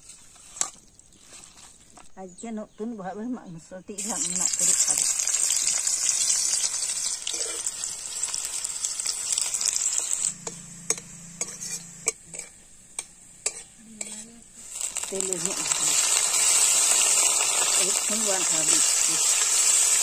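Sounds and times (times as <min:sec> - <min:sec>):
onions sizzling in hot oil: 0:04.0 - 0:20.0
metal spatula scraping a pan: 0:06.6 - 0:08.4, 0:09.0 - 0:20.0.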